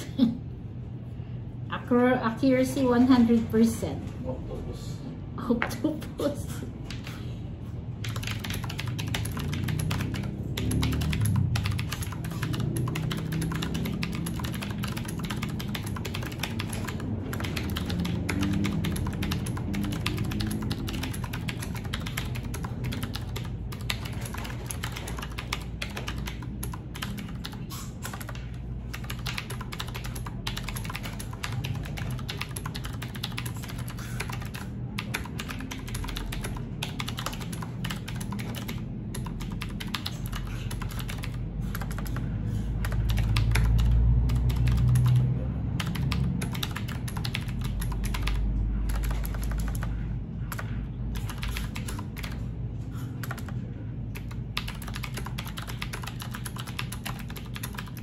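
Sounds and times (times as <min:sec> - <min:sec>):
mechanical keyboard typing: 0:08.0 - 0:52.5, 0:53.2 - 0:58.0.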